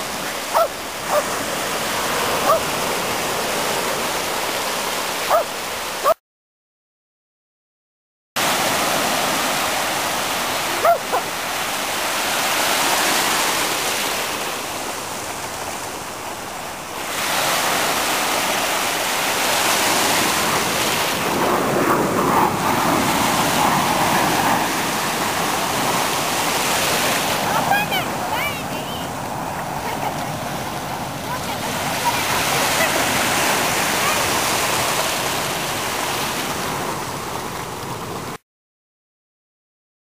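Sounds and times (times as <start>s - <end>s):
sea surf washing onto beach: 0.0s - 6.1s, 8.4s - 38.4s
dog yipping: 0.5s - 1.3s, 2.4s - 2.7s, 5.3s - 6.2s, 10.8s - 11.3s.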